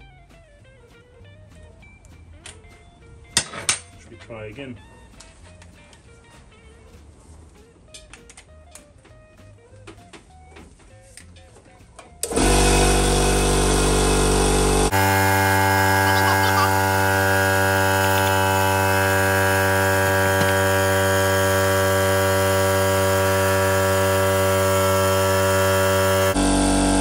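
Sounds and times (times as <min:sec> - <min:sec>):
air compressor motor humming: 0:12.2 - 0:27.0.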